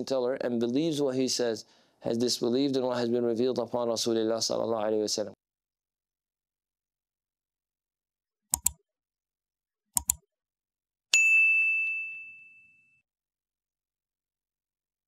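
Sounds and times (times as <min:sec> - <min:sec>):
mouse clicks: 0:08.5 - 0:08.8, 0:10.0 - 0:10.2
bell ding: 0:11.1 - 0:13.1.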